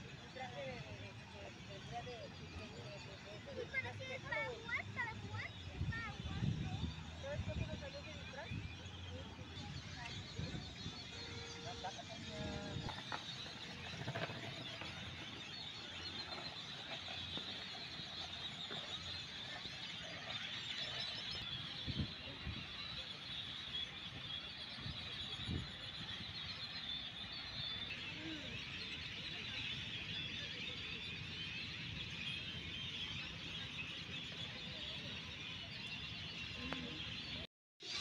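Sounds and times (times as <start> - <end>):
many birds chirping: 0.0 - 38.0.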